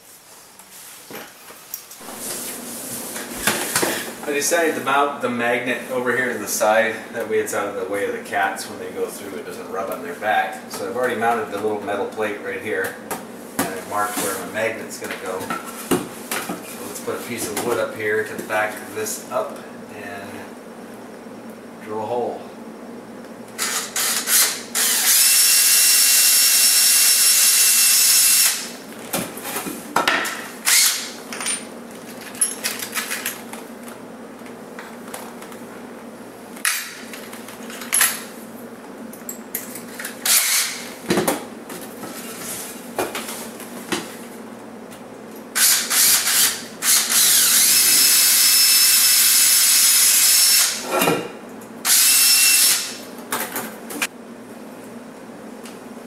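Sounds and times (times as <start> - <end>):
electric drill drilling wood: 23.6 - 28.7, 30.7 - 31.1, 40.3 - 40.8, 45.6 - 50.8, 51.9 - 53.0.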